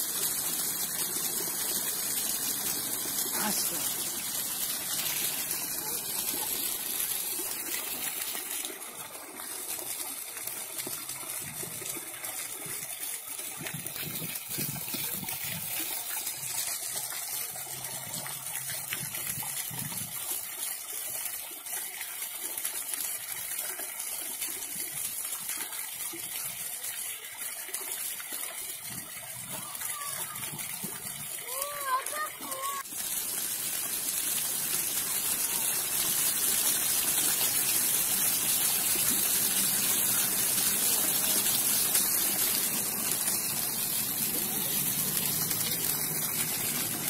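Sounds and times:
fountain water jets pattering on stone: 0.0 - 47.0.

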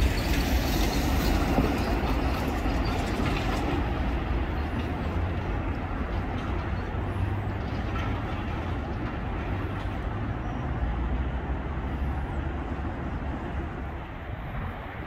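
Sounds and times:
distant vehicles rumbling: 0.0 - 15.0.

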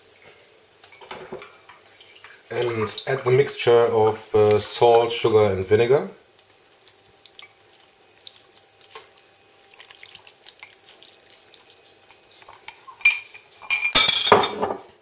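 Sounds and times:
liquid trickling onto rice: 6.4 - 13.0.

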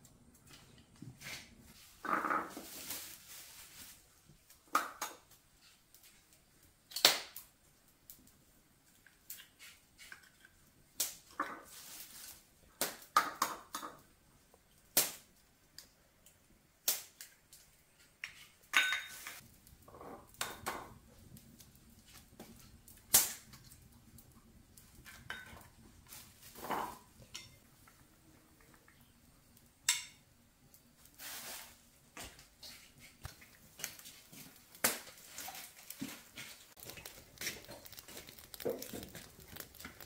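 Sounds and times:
scraping and rustling handling noise: 0.5 - 4.3, 11.6 - 12.5, 31.0 - 40.0.

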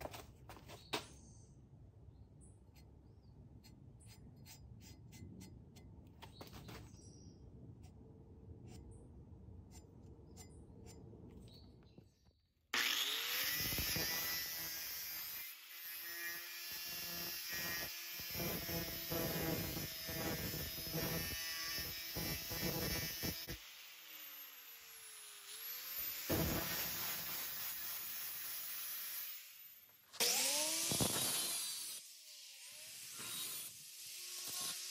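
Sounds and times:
angle grinder grinding steel: 12.8 - 34.9.

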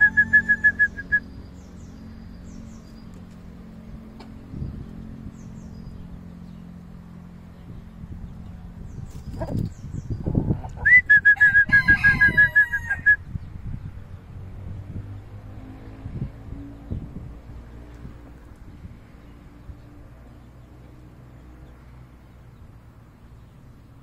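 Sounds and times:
small birds chirping: 0.0 - 12.6, 13.2 - 24.0
chicken calling loudly: 10.3 - 13.2.

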